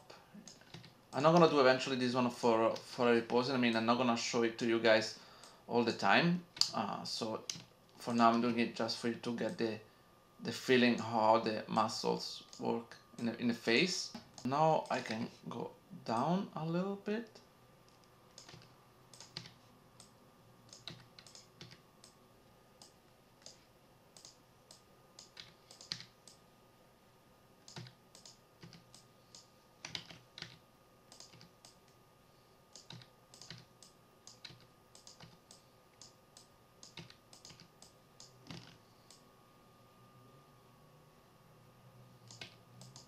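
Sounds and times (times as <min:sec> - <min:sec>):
faint steady whine: 0:00.0 - 0:43.0
keyboard and mouse clicks: 0:00.4 - 0:01.5, 0:06.6 - 0:06.8, 0:07.4 - 0:07.7, 0:17.9 - 0:20.1, 0:20.7 - 0:22.2, 0:24.2 - 0:26.4, 0:27.6 - 0:32.0, 0:32.7 - 0:39.2, 0:42.2 - 0:43.0.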